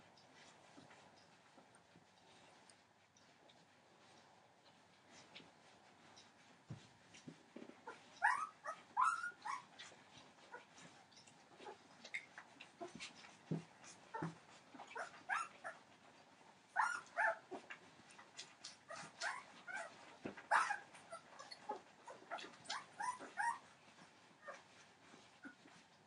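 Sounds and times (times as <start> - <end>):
puppies whimpering and squeaking: 7.8 - 16.0, 16.7 - 25.8.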